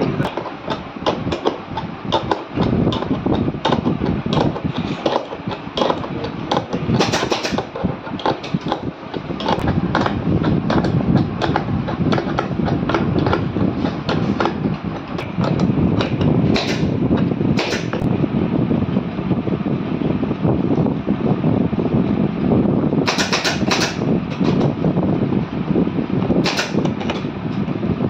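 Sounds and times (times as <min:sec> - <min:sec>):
low background rumble: 0:00.0 - 0:28.0.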